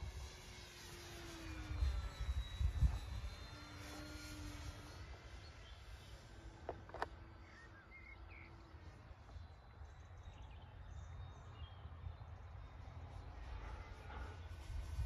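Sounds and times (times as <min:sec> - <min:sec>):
wind rumbling on microphone: 0:01.6 - 0:05.3, 0:10.5 - 0:15.0
faint bird chirps: 0:07.2 - 0:14.5.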